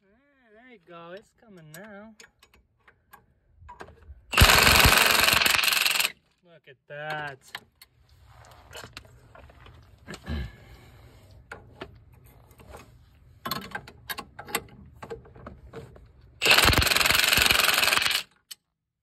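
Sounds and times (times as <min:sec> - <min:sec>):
tools clicking on a nut: 0:01.6 - 0:06.1, 0:16.4 - 0:18.7
impact wrench hammering: 0:04.4 - 0:06.1, 0:16.4 - 0:18.2.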